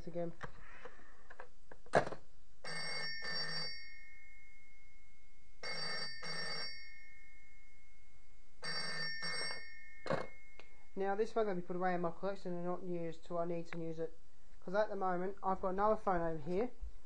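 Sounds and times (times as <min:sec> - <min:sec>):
phone bell ringing: 0:02.6 - 0:05.0, 0:05.6 - 0:08.0, 0:08.6 - 0:10.6.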